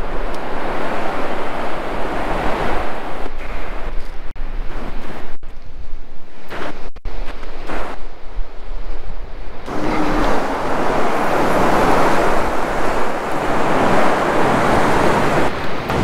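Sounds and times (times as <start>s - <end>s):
wave breaking on beach: 0.0s - 3.9s, 9.6s - 16.0s
wind rumble on microphone: 0.0s - 16.0s.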